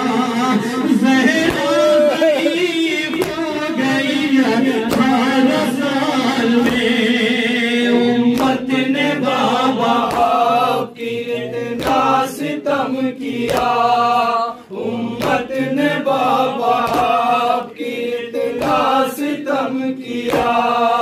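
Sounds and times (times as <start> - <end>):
men chanting in chorus: 0.0 - 21.0
hands slapping chests: 1.3 - 3.6, 4.8 - 5.6, 6.6 - 7.0, 8.3 - 8.8, 9.8 - 10.6, 11.7 - 12.3, 13.3 - 14.0, 15.2 - 15.6, 16.2 - 17.5, 18.5 - 19.1, 20.1 - 20.9.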